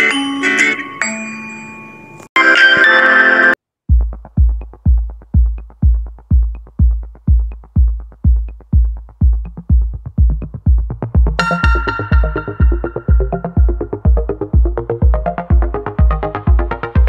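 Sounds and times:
electronic music with kick drum: 3.9s - 17.0s.

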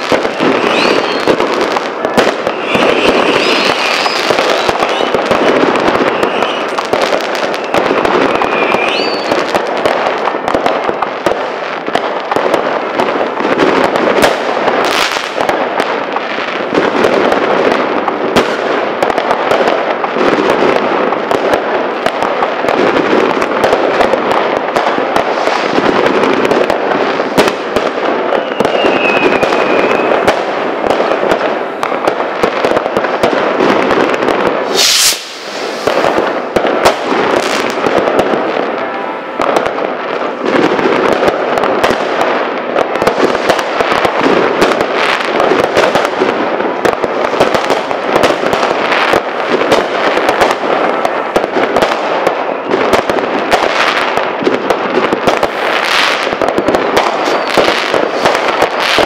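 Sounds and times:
firecrackers crackling: 0.0s - 59.0s
fireworks bangs: 0.0s - 59.0s
sharp firework crack: 0.0s - 59.0s
high wavering whistle: 0.6s - 1.3s, 8.5s - 9.3s, 28.4s - 30.1s.

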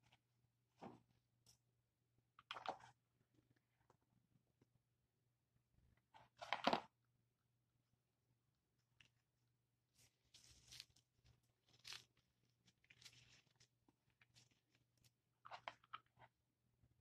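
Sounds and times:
dry moss crackling and rustling: 9.9s - 15.2s.

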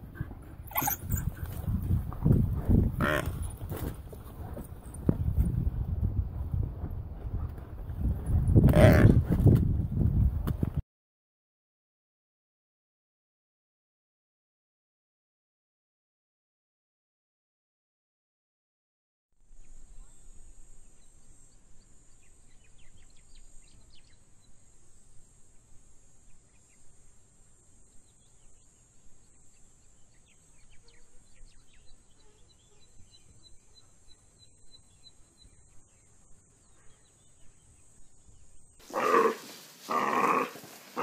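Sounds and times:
wild dogs twittering: 0.6s - 1.7s, 38.8s - 41.0s
loud animal cries: 0.7s - 1.2s, 3.0s - 3.3s, 38.9s - 41.0s
steady high hiss: 37.3s - 41.0s.

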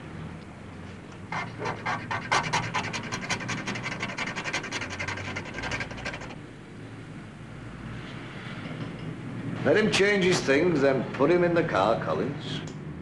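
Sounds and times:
metal scraping painted metal panel: 1.3s - 6.4s.

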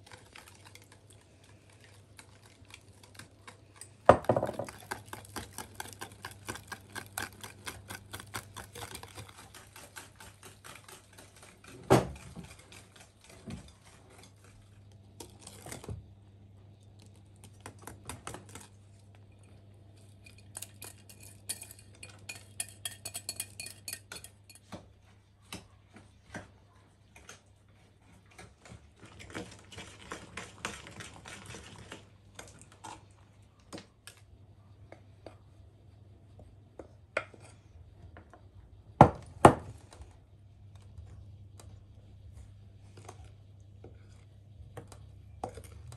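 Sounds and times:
clinks and scrapes of stirring: 0.0s - 15.8s, 18.2s - 25.0s, 36.4s - 38.4s, 42.7s - 45.9s
whisk clicking against glass bowl: 21.2s - 24.6s.

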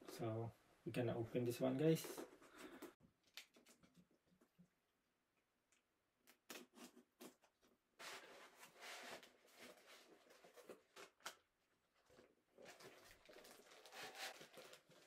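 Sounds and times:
packaging scraping and rustling: 12.6s - 15.0s.

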